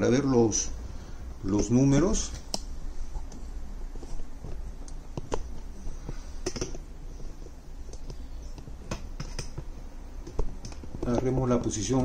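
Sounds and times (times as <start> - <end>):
low steady hum: 0.0 - 12.0
handling clicks and knocks: 4.0 - 6.8, 7.8 - 12.0.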